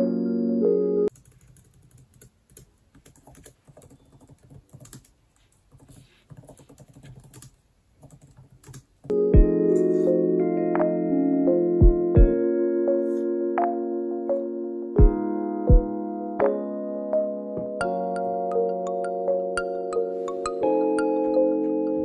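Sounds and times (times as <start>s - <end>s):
background music: 0.0s - 1.1s, 9.1s - 22.0s.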